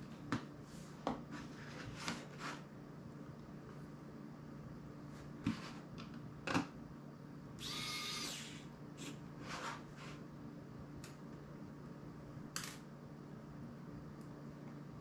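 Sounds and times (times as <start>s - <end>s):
electric screwdriver whirring: 7.6s - 8.6s.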